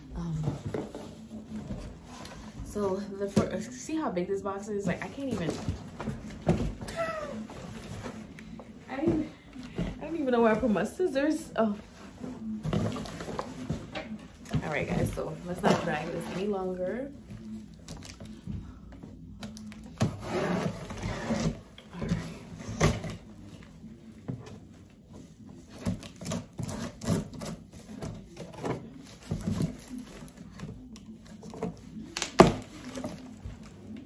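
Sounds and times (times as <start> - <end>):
cardboard rustling: 4.7 - 34.0
scissors cutting cardboard box tape: 25.7 - 30.3.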